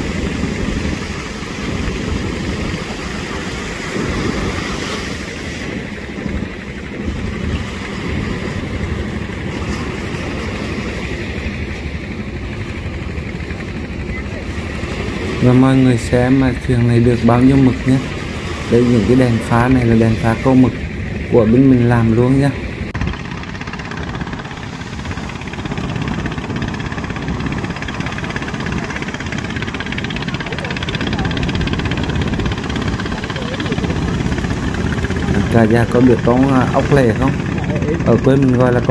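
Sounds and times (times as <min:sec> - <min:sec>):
small engine running: 0:00.0 - 0:38.9
surf washing: 0:00.0 - 0:38.9.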